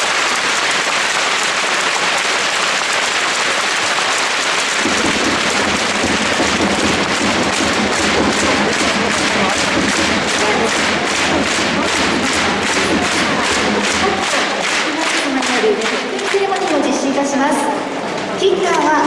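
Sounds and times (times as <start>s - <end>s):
crowd applauding: 0.0s - 19.0s
drums pounding: 3.0s - 17.3s.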